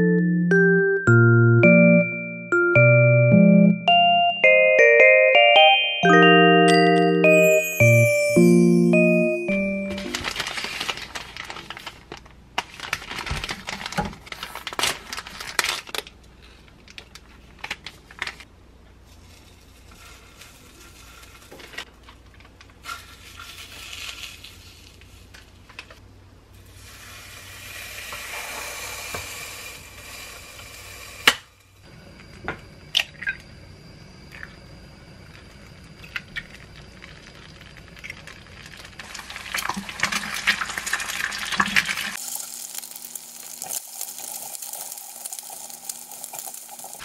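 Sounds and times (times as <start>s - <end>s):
egg cracking on a pan: 36.2s - 47.0s.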